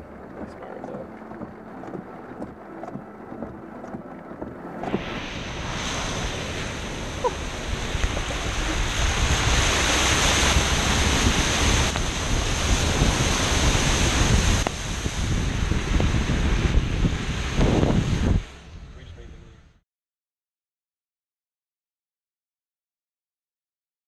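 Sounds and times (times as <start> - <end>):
tyres driving through deep water: 0.0 - 18.6
wind on microphone: 0.0 - 19.8.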